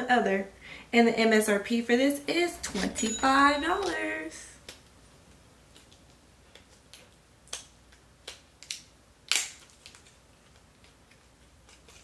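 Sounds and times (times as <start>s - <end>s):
packaging clicks and crinkles: 5.7s - 12.0s.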